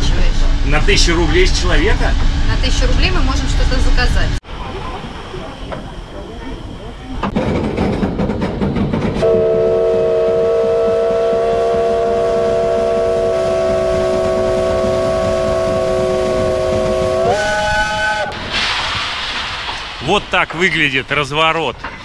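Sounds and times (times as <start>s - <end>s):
steam locomotive whistle: 9.2s - 18.4s.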